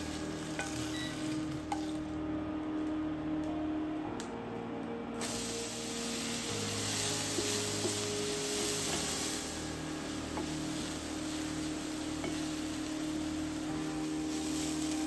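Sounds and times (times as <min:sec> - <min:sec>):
onion sizzling in hot oil: 0:00.0 - 0:02.1, 0:05.2 - 0:15.0.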